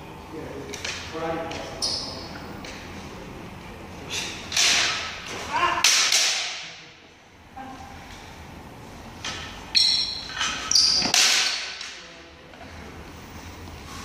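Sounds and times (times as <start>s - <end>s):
bamboo swords clacking: 4.2s - 6.8s, 9.2s - 12.0s.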